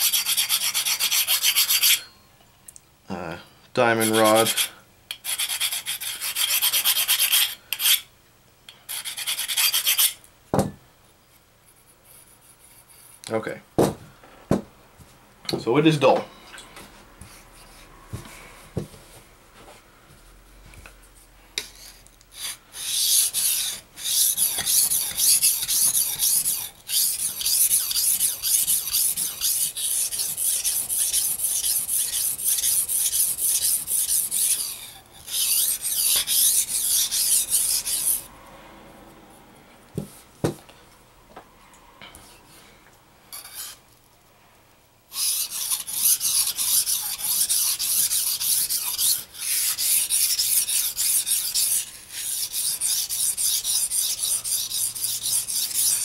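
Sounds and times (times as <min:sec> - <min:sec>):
knife scraping on whetstone: 0:00.0 - 0:02.1, 0:04.0 - 0:08.1, 0:08.9 - 0:10.2, 0:21.6 - 0:38.3, 0:43.3 - 0:43.8, 0:45.1 - 0:56.0.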